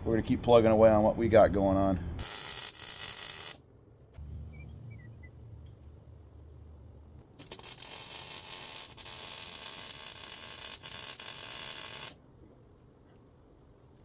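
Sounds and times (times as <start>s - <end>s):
welding arc sizzling: 2.2s - 3.6s, 7.2s - 12.2s.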